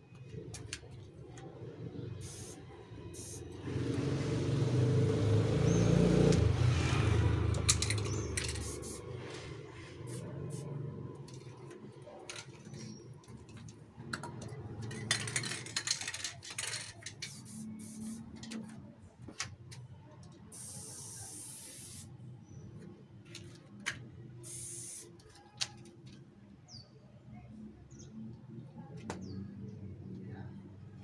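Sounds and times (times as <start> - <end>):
passing vehicle rumble: 1.4 - 12.0
spray can hissing: 2.2 - 3.6, 7.6 - 9.2, 10.0 - 10.7, 17.2 - 18.4, 20.5 - 22.1, 24.4 - 25.1.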